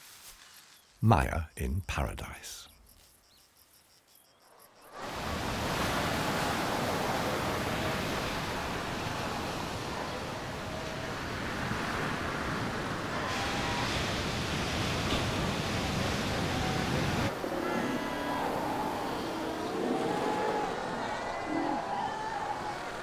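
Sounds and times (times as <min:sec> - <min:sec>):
surf breaking over rocks: 0:05.0 - 0:17.3.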